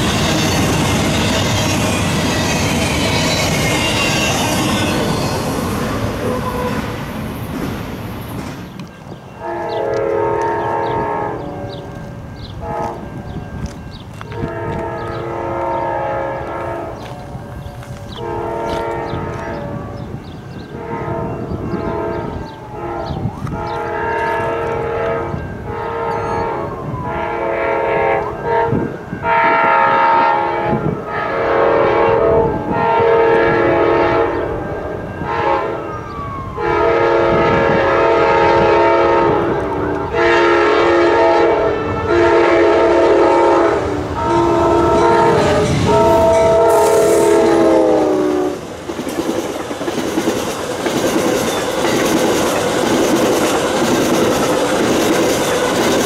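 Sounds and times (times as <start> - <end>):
low rumble of train: 0.0 - 56.0
locomotive air horn blasts: 9.4 - 12.0, 12.6 - 13.1, 14.2 - 19.9, 20.7 - 35.9, 36.5 - 48.6.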